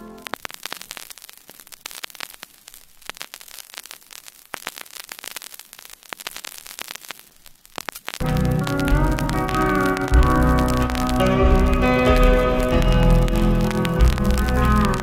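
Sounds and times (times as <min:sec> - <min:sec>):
faint hiss: 0:00.0 - 0:15.0
record crackle and pops: 0:00.0 - 0:15.0
music: 0:08.2 - 0:15.0.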